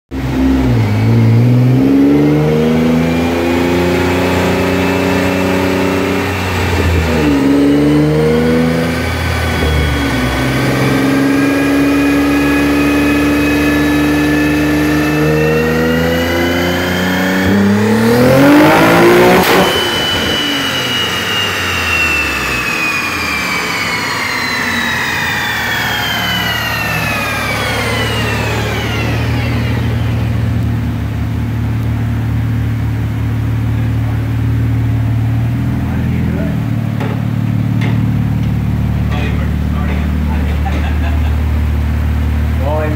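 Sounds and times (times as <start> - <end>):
car engine revving on dyno: 0.1 - 42.9
high whine of rollers spinning down: 0.2 - 31.6.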